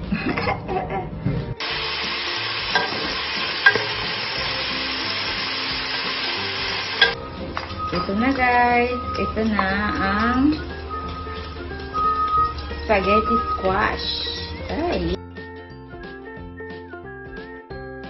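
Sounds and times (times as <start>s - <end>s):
bacon sizzling in oil: 1.6s - 15.2s.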